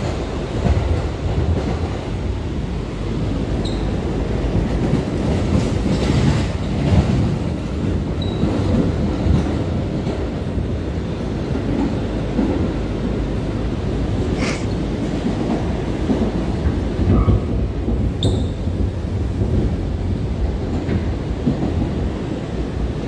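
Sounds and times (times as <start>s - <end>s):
steel wheels rumbling on rails: 0.0s - 23.0s
clacks over rail joints: 3.6s - 13.2s, 14.3s - 19.8s, 20.6s - 22.3s.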